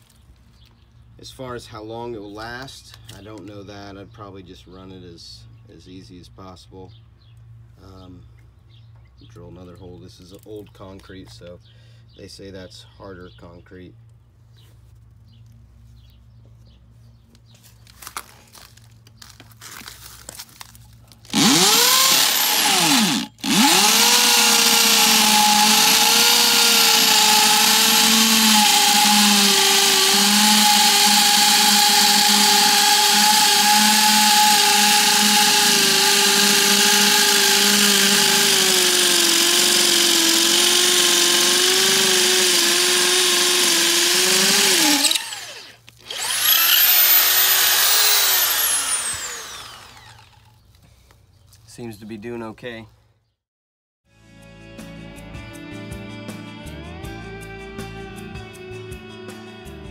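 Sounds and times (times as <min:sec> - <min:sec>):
hammer drill boring into concrete: 0:21.3 - 0:50.5.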